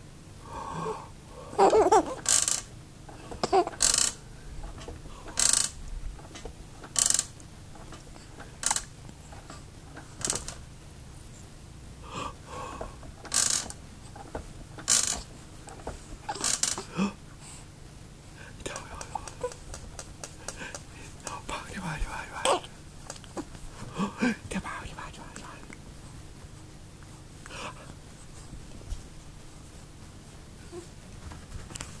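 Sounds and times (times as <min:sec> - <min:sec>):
baby vocalizing: 0:01.5 - 0:02.2, 0:03.4 - 0:03.8, 0:22.4 - 0:23.5
baby swing clicking: 0:03.4 - 0:08.0, 0:08.6 - 0:08.9.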